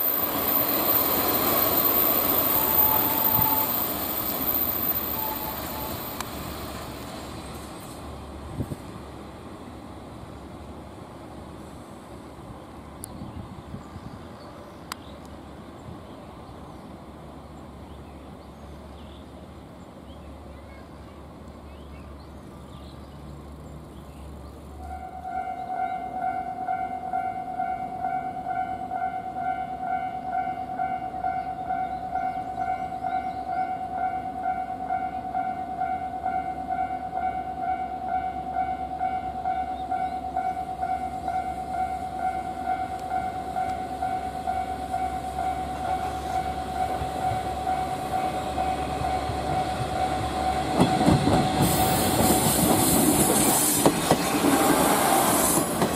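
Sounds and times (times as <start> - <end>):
level-crossing warning bell: 0.0 - 6.5, 24.8 - 51.6
diesel railcar approaching: 0.0 - 55.9.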